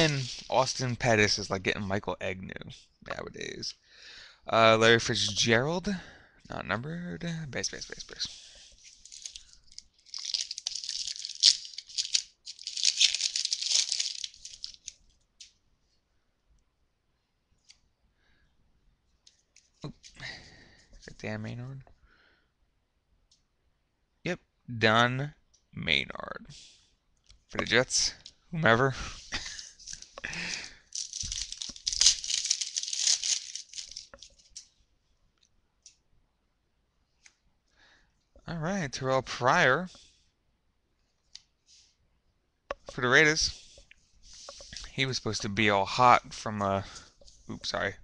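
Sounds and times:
wrapper snapping: 0.0 - 0.7, 8.9 - 15.5, 29.8 - 34.7
wrapper crinkling: 0.0 - 0.9, 8.8 - 15.0, 29.4 - 34.7
cards clicking: 9.1 - 15.5, 30.0 - 34.4.

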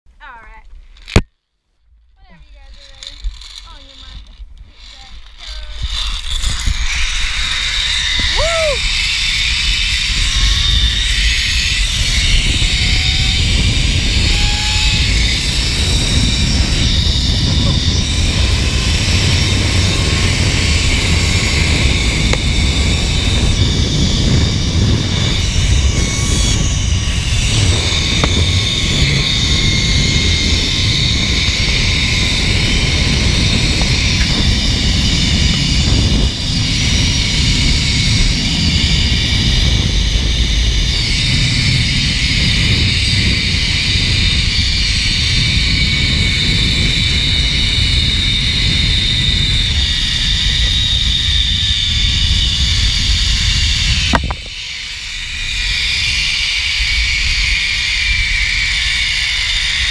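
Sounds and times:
wind rushing over microphone: 2.2 - 59.9
pulleys whining along steel cable: 2.4 - 59.9.

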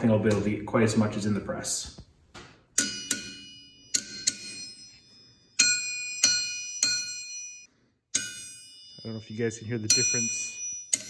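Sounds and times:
steel tool striking anvil: 5.6 - 7.6, 8.2 - 9.2.

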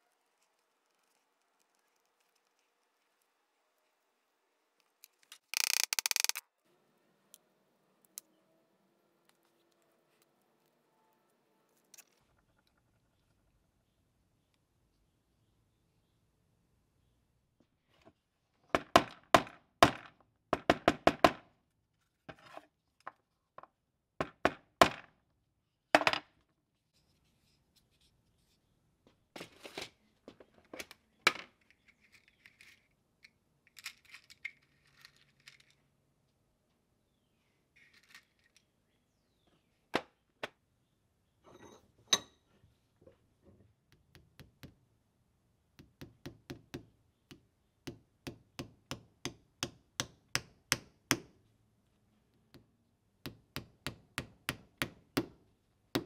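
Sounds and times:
tools clicking and knocking: 5.0 - 6.4
rustling and scraping: 26.8 - 33.0, 37.8 - 38.8.

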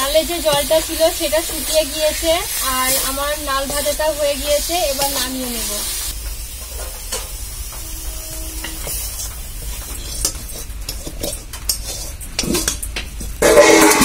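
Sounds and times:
metal spatula scraping a wok: 7.7 - 12.7, 13.4 - 14.0.

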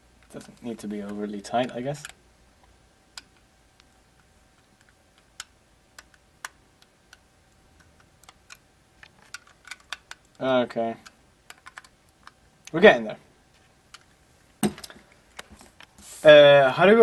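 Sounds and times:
small plastic parts clicking: 3.1 - 12.8, 13.9 - 15.9.

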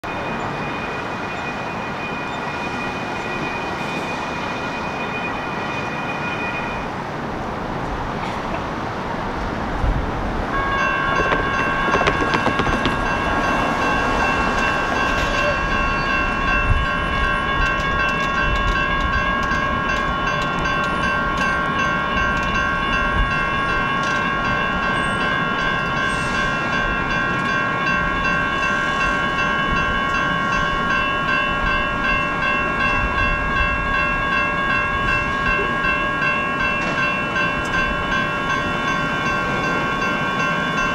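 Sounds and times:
crossing signal bells ringing: 0.0 - 7.2, 10.4 - 40.9
street noise: 0.0 - 40.9
knocks: 11.1 - 13.7.

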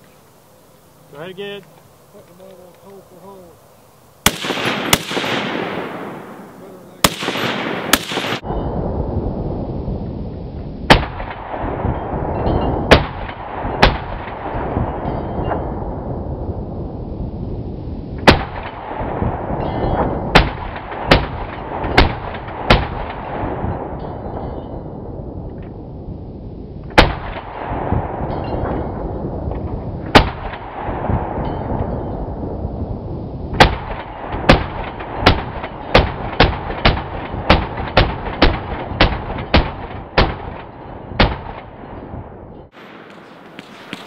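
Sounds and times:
rolling echo of gunshots: 4.2 - 8.6, 10.9 - 15.0, 18.2 - 24.0, 26.9 - 29.1, 30.0 - 31.4, 33.5 - 42.0
machine gun firing shots: 4.3 - 6.4, 7.0 - 8.4.

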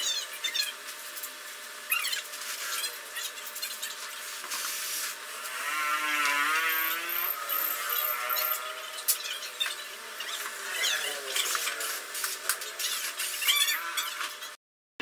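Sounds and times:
power tool motor whirring: 5.3 - 9.2.

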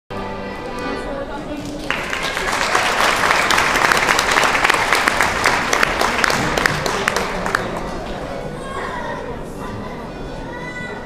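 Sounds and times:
audience applauding: 1.7 - 8.2.

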